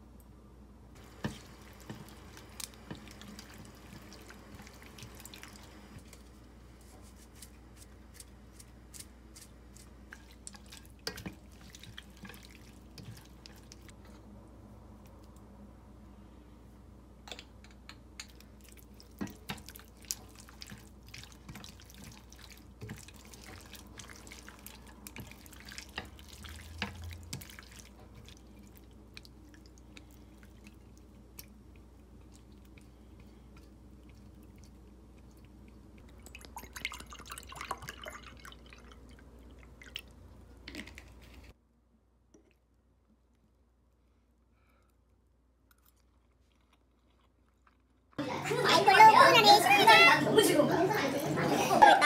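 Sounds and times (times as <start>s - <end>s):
water dripping: 35.2s - 40.2s.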